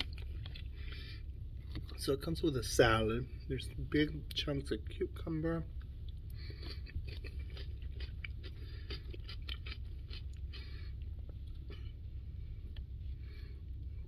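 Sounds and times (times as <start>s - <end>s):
chewing crunchy cucumber: 0.0s - 2.3s, 5.6s - 12.0s
low steady hum: 0.0s - 14.0s.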